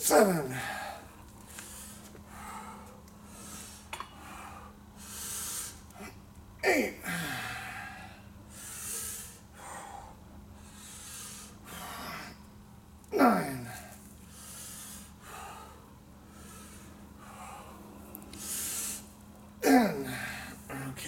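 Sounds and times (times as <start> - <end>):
man breathing hard: 0.4 - 6.2, 7.0 - 12.5, 13.6 - 20.7.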